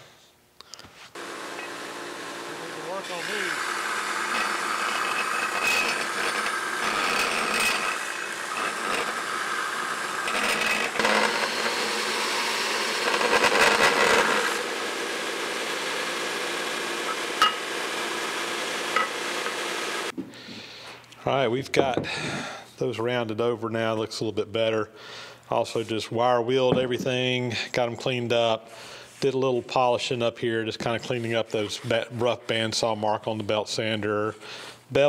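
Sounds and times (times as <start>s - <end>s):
belt sander grinding steel: 1.2s - 20.1s.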